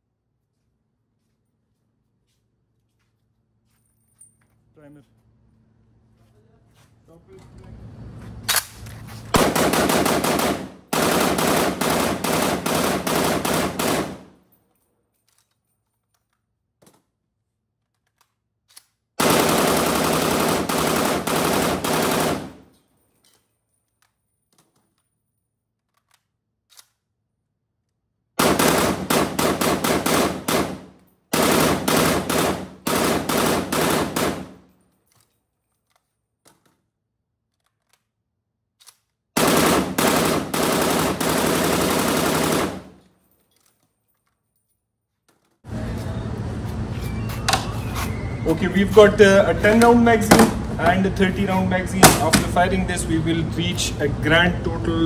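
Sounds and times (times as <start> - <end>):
rifle firing full auto bursts: 9.4 - 14.4, 19.2 - 22.8, 28.4 - 34.7, 39.4 - 43.1, 52.0 - 52.6.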